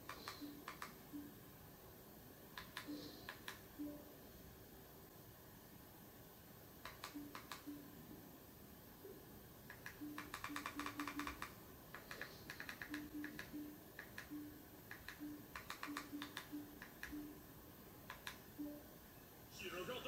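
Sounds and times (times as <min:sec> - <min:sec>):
remote control buttons clicking: 0:00.0 - 0:01.3, 0:02.5 - 0:04.0, 0:06.8 - 0:07.9, 0:09.7 - 0:17.4, 0:18.0 - 0:18.8.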